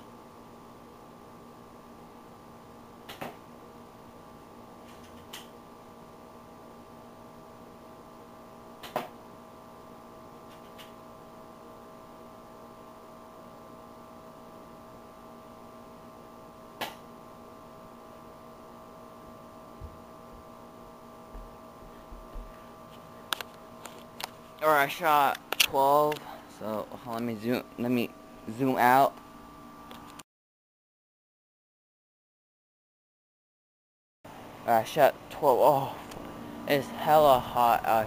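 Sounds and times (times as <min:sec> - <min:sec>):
air conditioner hum: 0:00.0 - 0:30.2, 0:34.3 - 0:38.0
sharp ticks of airsoft shots: 0:03.1 - 0:03.4, 0:08.8 - 0:09.1.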